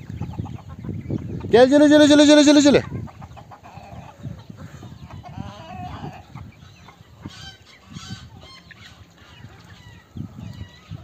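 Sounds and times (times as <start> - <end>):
chickens clucking: 0.0 - 11.0
sharp high chicken calls: 0.2 - 11.0.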